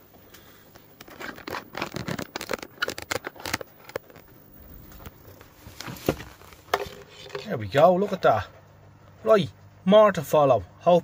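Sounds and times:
camera handling rustle: 0:00.9 - 0:07.5.

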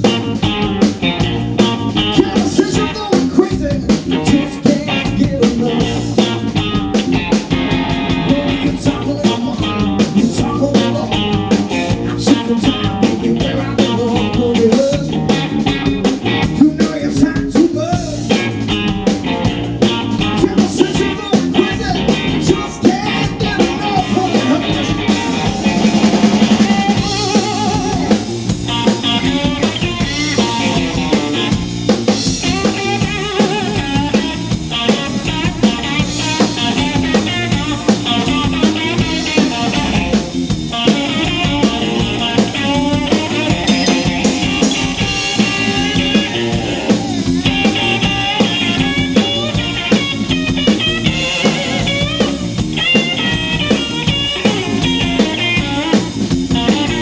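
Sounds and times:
blues-rock band playing: 0:00.0 - 0:57.0
drum kit beating: 0:00.0 - 0:57.0
electric guitar solo: 0:18.2 - 0:57.0.

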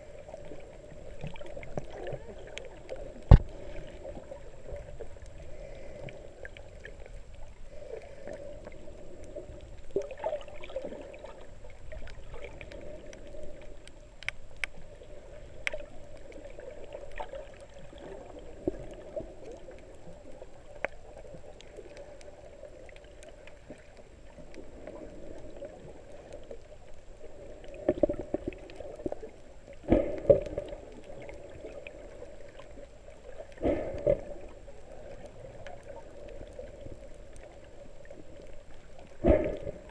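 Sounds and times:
muffled underwater water noise: 0:00.0 - 0:39.9
water gurgling: 0:00.0 - 0:39.9.

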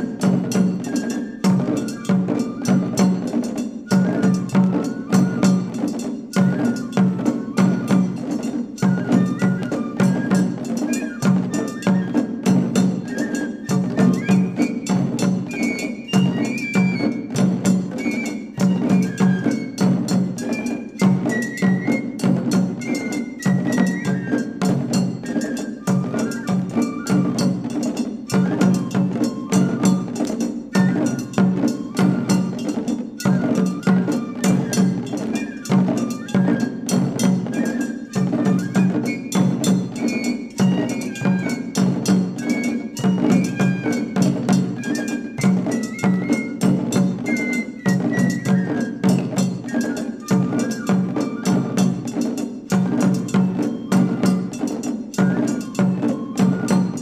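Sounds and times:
bamboo flute melody: 0:00.0 - 0:57.0
barrel drum: 0:00.0 - 0:57.0
small stick drums: 0:00.0 - 0:57.0.

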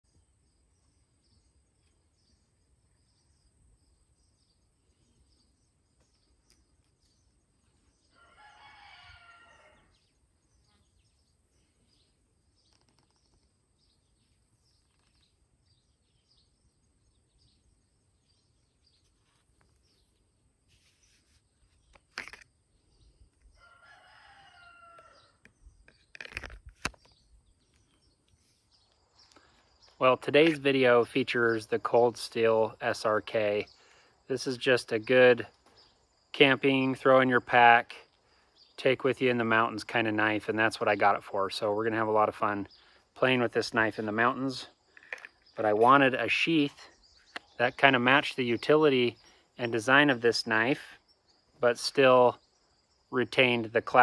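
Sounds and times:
faint high bird chirps: 0:00.0 - 0:30.6
rooster crowing: 0:08.1 - 0:10.0, 0:23.5 - 0:25.4.

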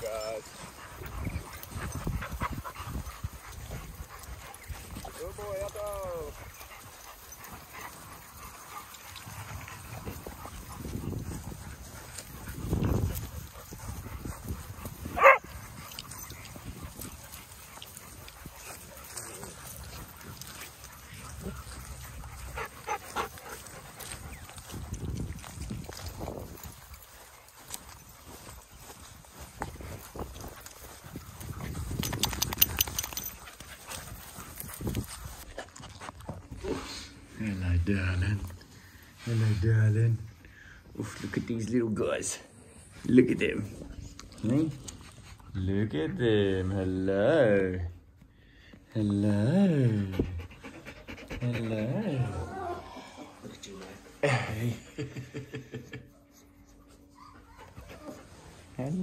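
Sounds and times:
dogs moving clicking and rustling: 0:00.0 - 0:36.6
dog barking: 0:15.2 - 0:15.5.

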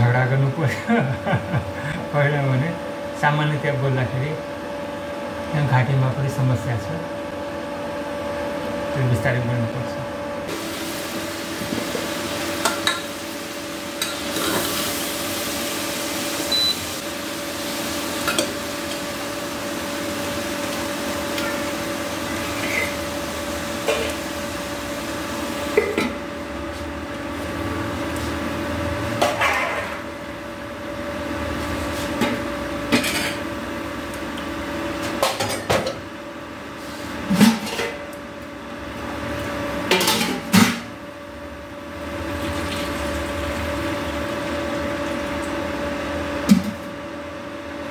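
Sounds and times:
pots and pans clinking: 0:11.6 - 0:13.2.

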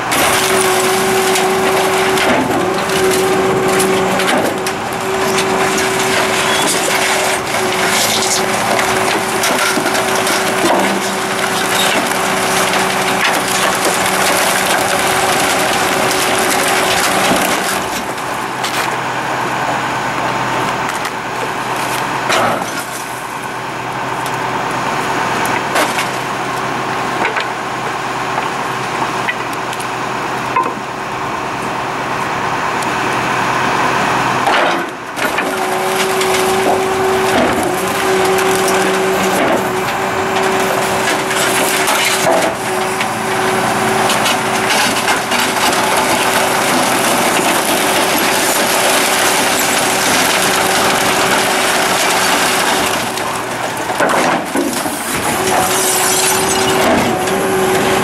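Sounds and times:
wood cracking and splintering: 0:00.0 - 0:19.0, 0:24.2 - 0:27.6, 0:34.3 - 0:58.0
hydraulic whine: 0:00.0 - 0:23.0, 0:30.4 - 0:58.0
truck engine running: 0:00.0 - 0:58.0.

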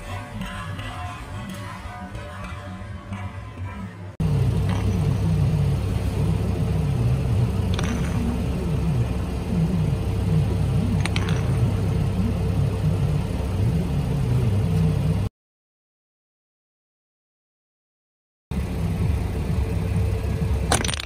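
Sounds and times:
car engine idling: 0:04.2 - 0:15.3, 0:18.5 - 0:21.0.

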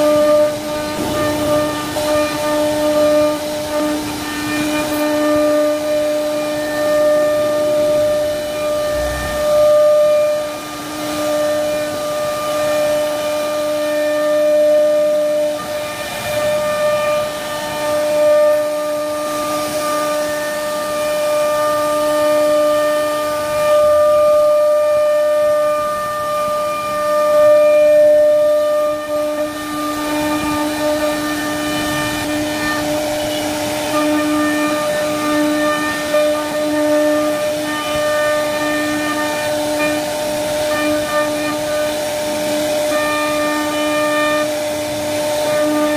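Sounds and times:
bit cutting through wood: 0:00.0 - 0:14.2
router spindle whining: 0:00.0 - 0:45.9.

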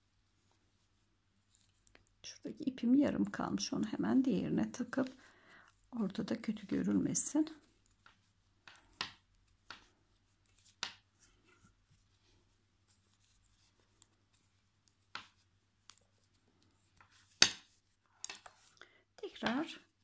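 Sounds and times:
soft yarn rustling: 0:00.0 - 0:20.0
knitting needles clicking: 0:14.8 - 0:17.6, 0:18.2 - 0:18.6.

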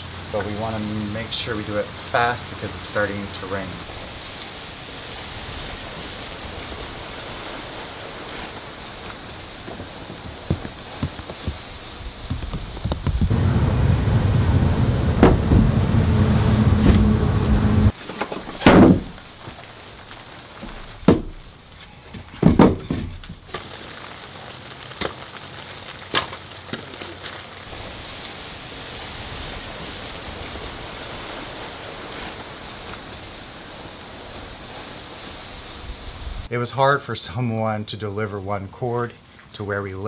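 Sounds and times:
rain falling: 0:00.0 - 0:22.0, 0:23.2 - 0:36.5
firewood logs dropped: 0:18.0 - 0:27.6.

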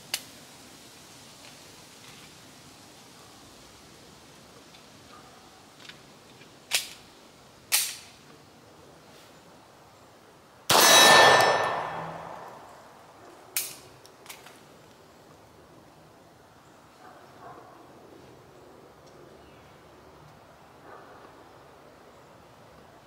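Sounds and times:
pistol shots: 0:10.7 - 0:12.7.

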